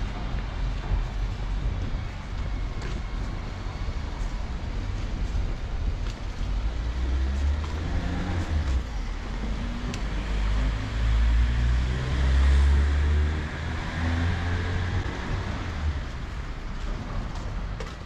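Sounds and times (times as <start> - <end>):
vehicle engine passing: 6.8 - 16.3.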